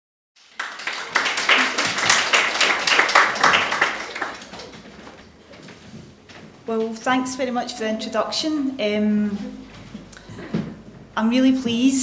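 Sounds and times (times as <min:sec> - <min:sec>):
audience applauding: 0:00.4 - 0:05.2.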